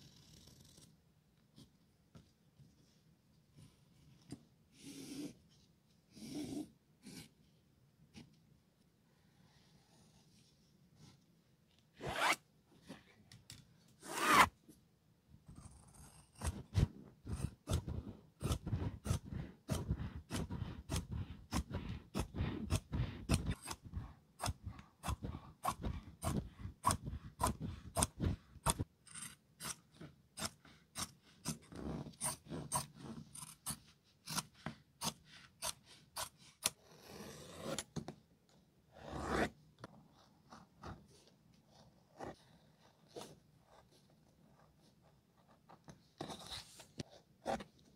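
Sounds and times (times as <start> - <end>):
shears snipping fabric: 16.4 - 28.9.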